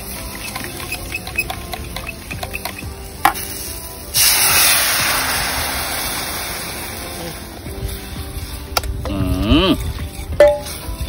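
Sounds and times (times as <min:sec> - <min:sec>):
utensils tapping metal cup: 0:00.0 - 0:03.5, 0:09.8 - 0:11.0
loud sizzle of liquid in hot pot: 0:00.0 - 0:11.0.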